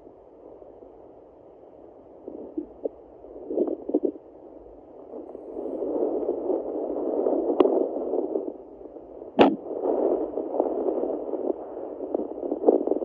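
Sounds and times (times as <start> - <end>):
fetal heartbeat on doppler: 2.2 - 4.2, 9.4 - 13.0.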